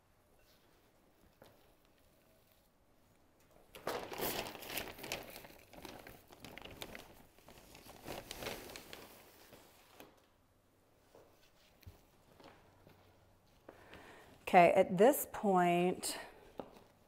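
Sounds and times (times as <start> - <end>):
bag crinkling and rustling: 3.7 - 10.3.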